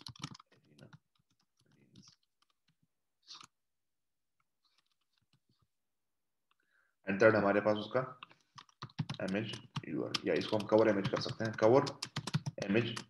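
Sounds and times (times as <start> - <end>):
faint keyboard typing: 0.0 - 3.5, 4.6 - 5.7, 8.2 - 13.0.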